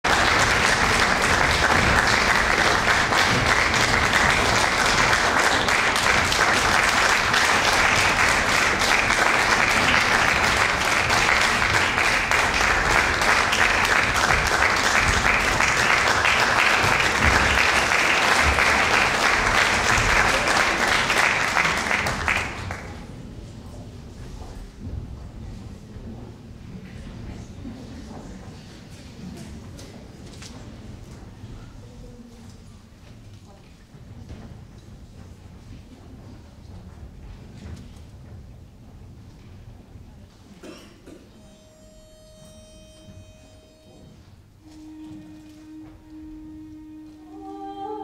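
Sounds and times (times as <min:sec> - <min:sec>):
audience applauding: 0:00.0 - 0:23.2.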